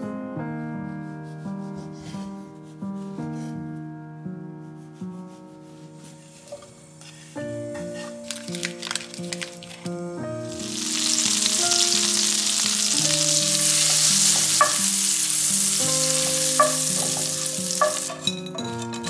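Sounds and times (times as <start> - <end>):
butter sizzling in a frying pan: 8.0 - 18.6
wooden spatula knocking on pan: 13.6 - 18.6.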